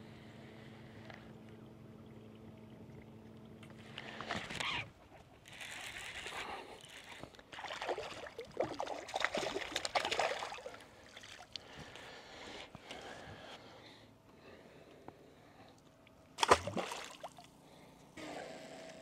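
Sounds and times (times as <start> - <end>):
fish splashing in water: 7.5 - 11.5, 16.4 - 17.5.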